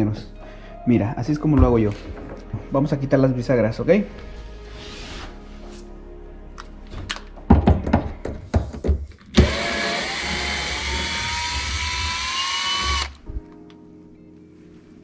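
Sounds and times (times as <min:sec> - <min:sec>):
cordless drill whine: 0:09.4 - 0:13.2.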